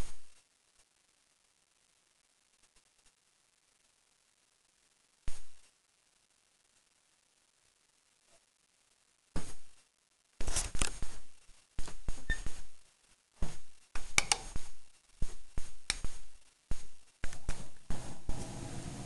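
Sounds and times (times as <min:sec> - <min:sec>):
steady low hum: 0:10.8 - 0:19.0.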